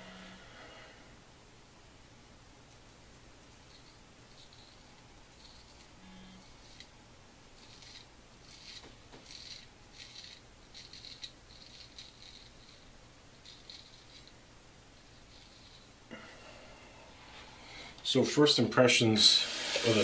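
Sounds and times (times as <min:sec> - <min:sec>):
razor scraping stubble: 0:07.6 - 0:14.3.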